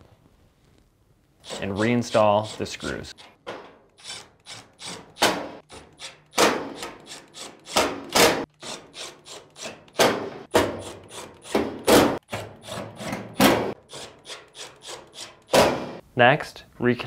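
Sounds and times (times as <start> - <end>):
screwdriver driving screws: 1.4 - 10.0, 10.6 - 11.7, 13.8 - 15.6.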